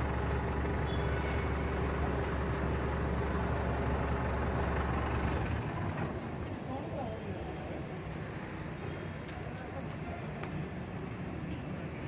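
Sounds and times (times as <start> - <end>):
truck engine idling: 0.0 - 7.1.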